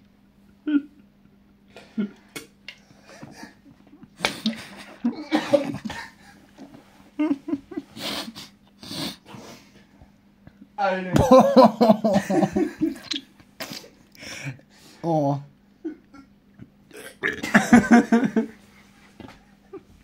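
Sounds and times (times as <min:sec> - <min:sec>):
faint steady hum: 0:00.0 - 0:20.0
person coughing and gagging: 0:04.2 - 0:06.2, 0:17.0 - 0:18.0.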